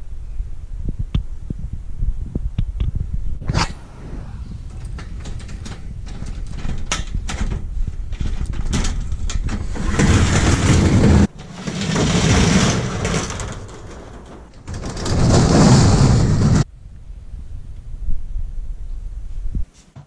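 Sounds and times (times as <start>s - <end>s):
metal garage door rattling: 4.5s - 16.7s.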